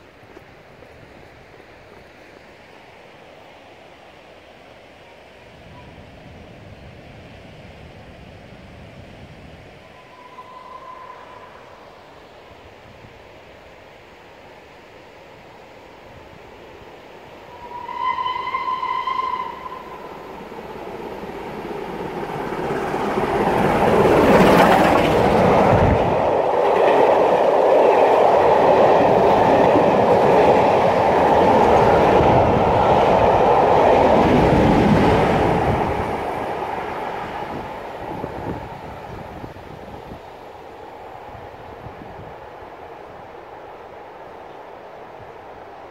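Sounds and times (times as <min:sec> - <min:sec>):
steam locomotive whistle: 0:09.8 - 0:12.1, 0:17.4 - 0:20.3
train wheels clattering on rails: 0:20.9 - 0:38.5.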